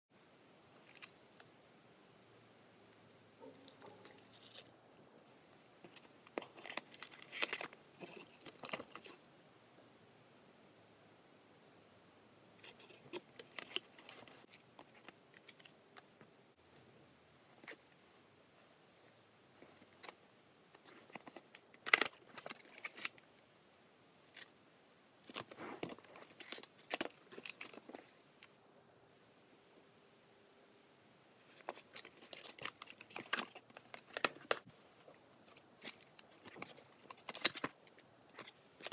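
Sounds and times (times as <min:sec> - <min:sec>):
crisp clicks and crinkles: 0:00.8 - 0:01.5, 0:02.3 - 0:09.2, 0:12.6 - 0:16.8, 0:19.6 - 0:23.4, 0:25.2 - 0:28.6, 0:31.4 - 0:38.9
cardboard packaging rustling: 0:05.8 - 0:09.2, 0:25.2 - 0:28.2, 0:31.4 - 0:38.9.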